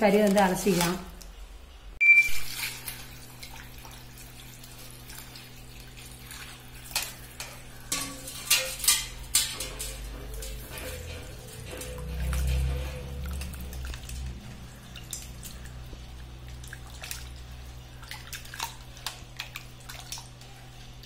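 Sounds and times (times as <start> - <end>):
water sloshing in a bowl: 2.4 - 21.0.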